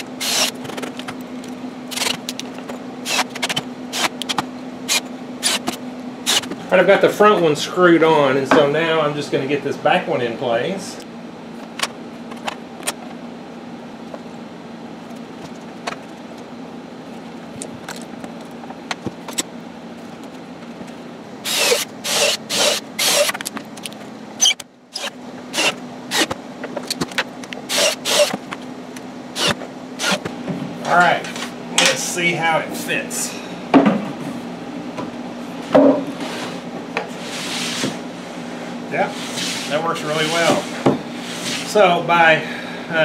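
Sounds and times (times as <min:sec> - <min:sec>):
steady low hum: 0:00.0 - 0:43.0
impact driver driving screws: 0:00.2 - 0:00.6, 0:03.1 - 0:06.5, 0:21.5 - 0:23.4, 0:24.4 - 0:26.4, 0:27.7 - 0:28.4, 0:29.4 - 0:30.3.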